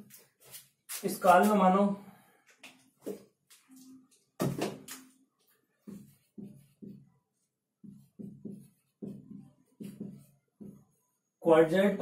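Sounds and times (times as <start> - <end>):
marker squeaking on whiteboard: 4.9 - 7.1, 7.8 - 11.4
marker tapping whiteboard: 5.8 - 7.1, 7.8 - 11.0.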